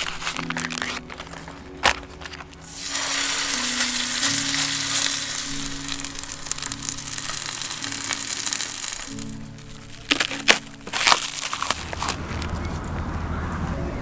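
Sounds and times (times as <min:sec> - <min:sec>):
steak sizzling in a frying pan: 0:02.7 - 0:10.1.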